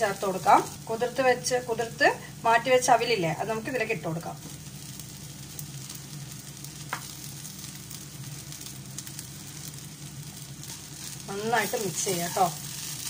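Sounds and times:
food sizzling in a pan: 0.0 - 13.0
low steady hum: 0.0 - 13.0.

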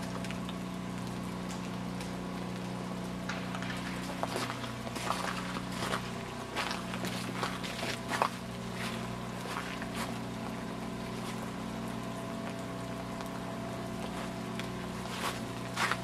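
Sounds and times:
low mechanical hum: 0.0 - 16.0
faint crunching footsteps: 3.3 - 10.2, 14.0 - 16.0.

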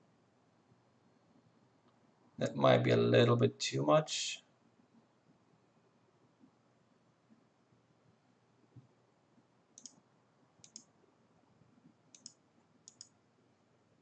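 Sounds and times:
computer mouse clicks: 9.8 - 10.0, 10.6 - 10.9, 12.1 - 13.2.

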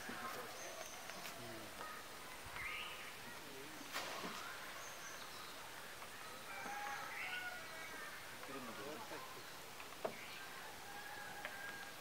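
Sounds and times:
steady hiss: 0.0 - 6.4.

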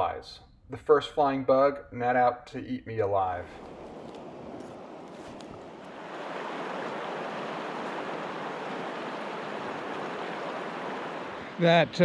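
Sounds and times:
river rushing: 3.6 - 12.0.

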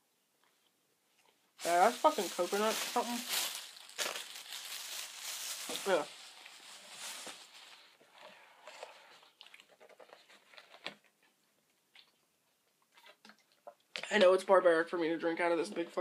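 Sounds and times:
plastic bag rustling: 1.6 - 8.0.

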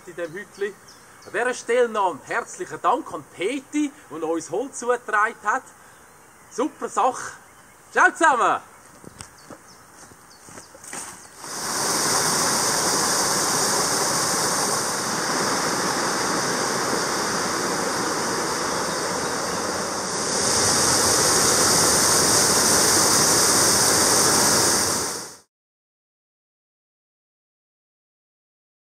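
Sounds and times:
stream rushing: 11.4 - 25.4.

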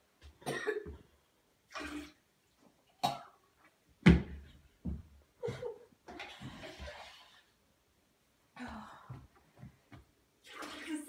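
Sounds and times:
person coughing: 0.4 - 0.9.

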